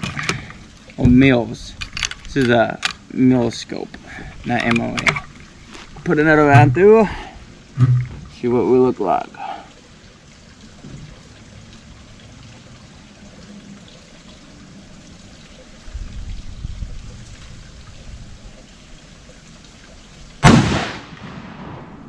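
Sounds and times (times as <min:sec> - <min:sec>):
rifle shot: 0:20.4 - 0:22.0.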